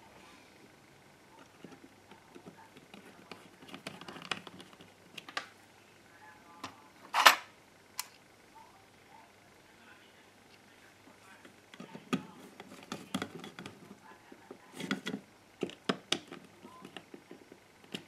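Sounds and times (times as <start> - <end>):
plastic clicks and rustles: 1.4 - 5.6.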